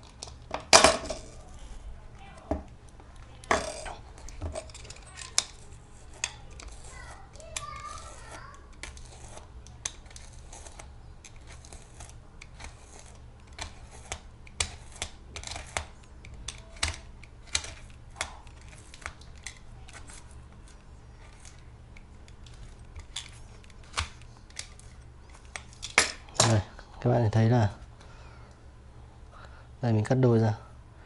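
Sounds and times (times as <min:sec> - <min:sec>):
knife scraping through foam: 0:06.0 - 0:09.5.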